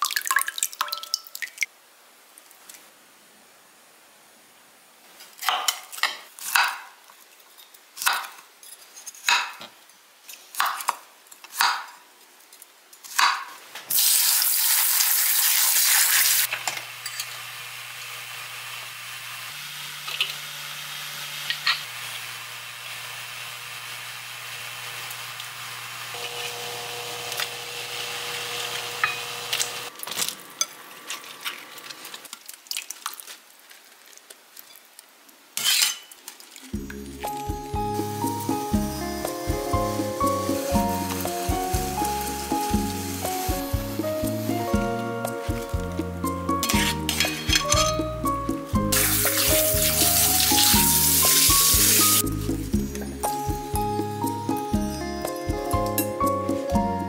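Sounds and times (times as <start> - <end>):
water pouring: 0.0 - 1.7, 29.9 - 34.8, 48.7 - 53.1
hiss from heating pan: 13.9 - 21.2, 21.9 - 26.2, 38.0 - 44.8, 48.7 - 52.8
induction cooktop humming: 16.4 - 31.2, 36.8 - 45.9
dishes and glass bowl clinking: 35.6 - 36.2, 45.5 - 48.3.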